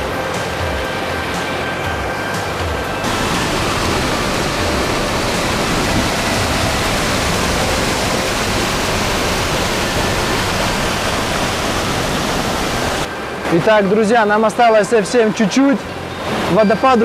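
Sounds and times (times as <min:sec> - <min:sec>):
waterfall rushing: 0:03.0 - 0:13.5.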